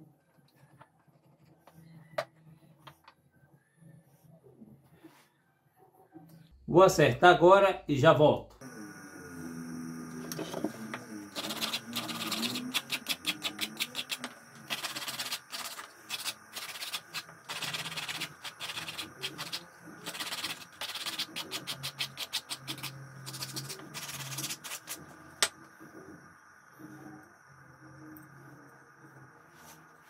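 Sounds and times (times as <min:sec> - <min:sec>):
rapid hand scraping: 0:11.4 - 0:25.0.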